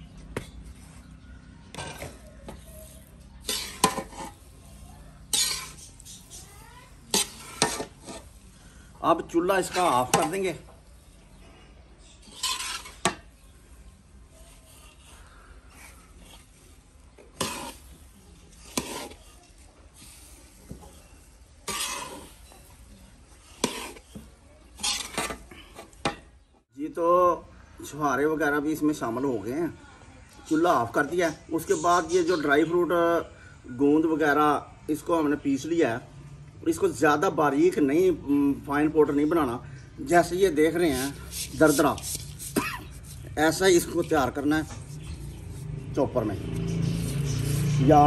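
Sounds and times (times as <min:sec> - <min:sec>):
dry mixture rustling: 0:00.0 - 0:26.5, 0:37.6 - 0:48.0
metal spatula scraping a wok: 0:01.7 - 0:08.6, 0:09.5 - 0:10.6, 0:12.0 - 0:13.5, 0:14.2 - 0:26.3, 0:40.2 - 0:46.0.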